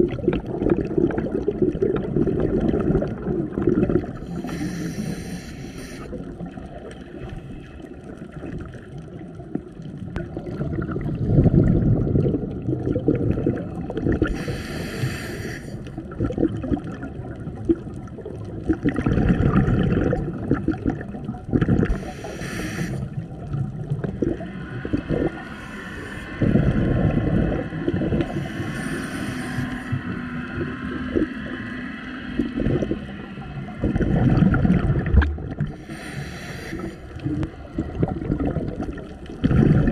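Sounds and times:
exhaled bubbles rumbling: 0:00.0 - 0:39.9
diver inhaling through regulator: 0:04.0 - 0:06.3, 0:14.2 - 0:16.0, 0:21.8 - 0:23.3, 0:24.8 - 0:30.3, 0:35.6 - 0:37.5.

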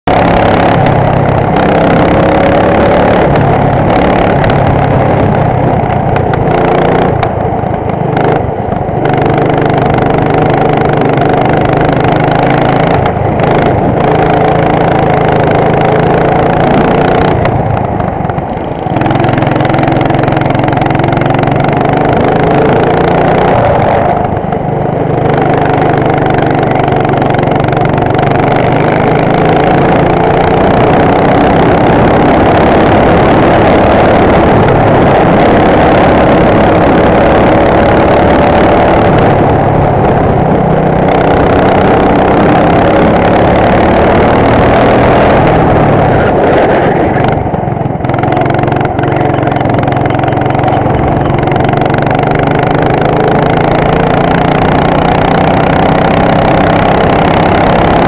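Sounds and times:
go-kart engine revving: 0:00.0 - 0:58.0.

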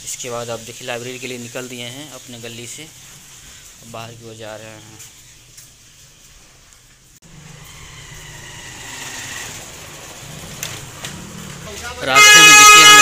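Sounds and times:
vehicle engine hum: 0:07.0 - 0:12.1.

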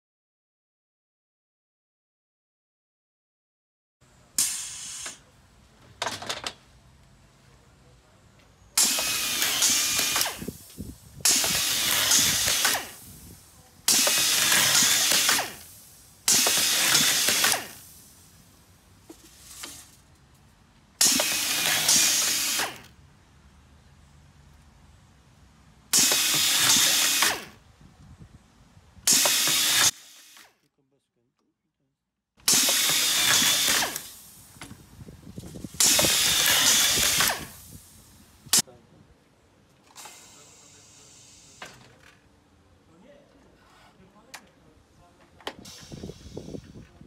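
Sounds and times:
automatic screwdriver whirring: 0:08.8 - 0:10.5, 0:11.2 - 0:13.0, 0:16.3 - 0:17.8, 0:21.0 - 0:22.9, 0:26.0 - 0:27.6, 0:29.1 - 0:30.5, 0:32.5 - 0:34.2, 0:35.8 - 0:37.6.

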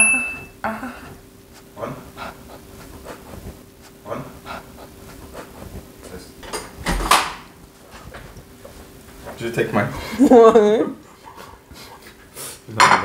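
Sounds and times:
faint steady hum: 0:00.0 - 0:13.0
dishes knocking and clicking: 0:12.8 - 0:13.0.

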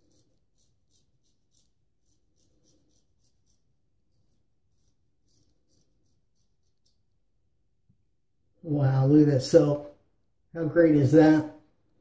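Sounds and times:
razor scraping stubble: 0:00.0 - 0:07.2.

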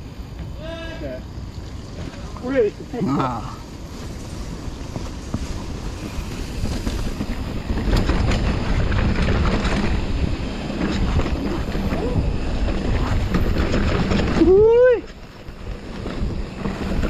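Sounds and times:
wind on microphone: 0:03.6 - 0:17.0
bike clicks and knocks: 0:04.8 - 0:14.8.

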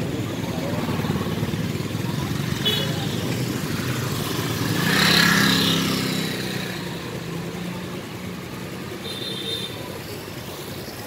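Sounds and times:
motor scooter passing: 0:00.0 - 0:08.8
street traffic: 0:00.0 - 0:11.0.

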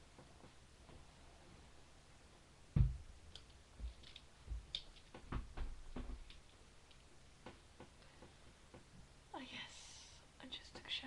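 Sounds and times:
dull low knocks: 0:02.7 - 0:03.1.

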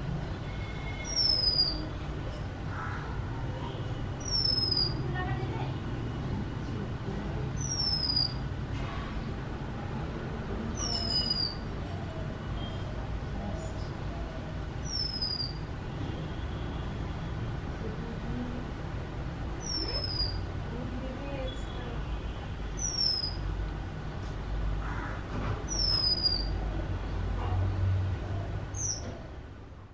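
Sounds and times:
bird whistling: 0:01.0 - 0:01.8, 0:04.2 - 0:05.0, 0:07.6 - 0:08.4, 0:10.9 - 0:11.6, 0:14.8 - 0:15.6, 0:19.6 - 0:20.4, 0:22.8 - 0:23.4, 0:25.7 - 0:26.5.

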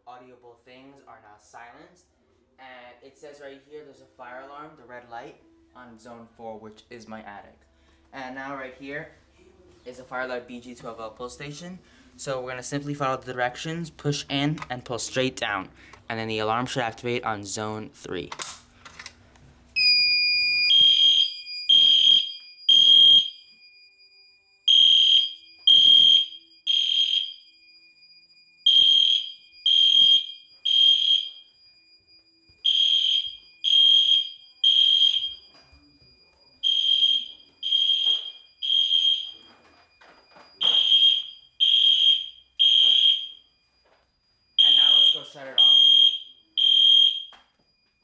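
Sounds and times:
fire alarm horn blasts: 0:19.8 - 0:48.0
steady high tone: 0:20.7 - 0:47.6.

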